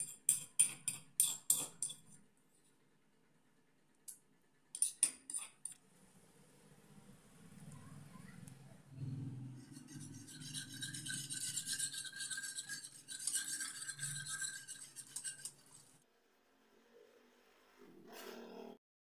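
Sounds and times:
wire whisk rattling in metal pan: 9.7s - 16.0s.

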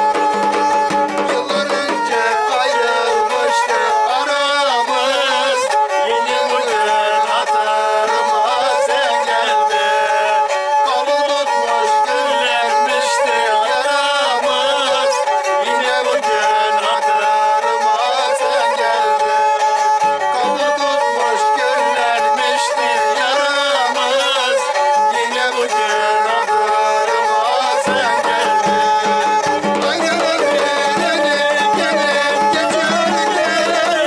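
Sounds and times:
bowed fiddle melody with drone: 0.0s - 34.0s.

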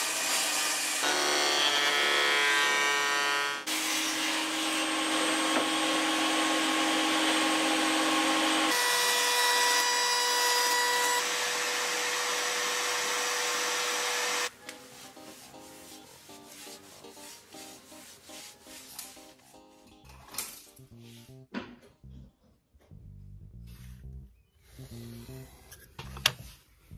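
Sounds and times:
woodworking machines running: 0.0s - 14.5s.

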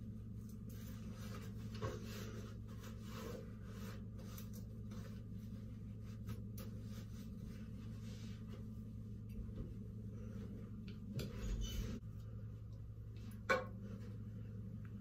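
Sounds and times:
low hum: 0.0s - 15.0s
faint rubbing and handling: 0.4s - 12.1s.

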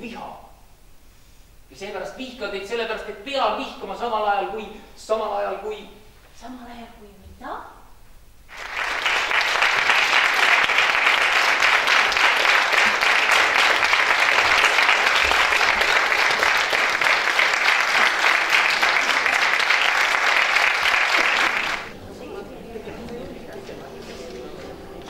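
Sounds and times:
audience applauding: 8.5s - 22.0s.

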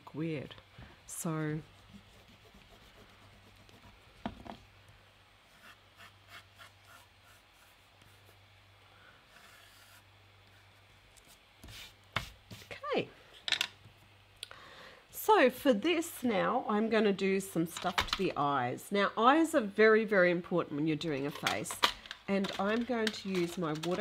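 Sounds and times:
pencil scratching on paper: 1.5s - 4.2s, 5.5s - 8.4s, 9.3s - 10.6s.

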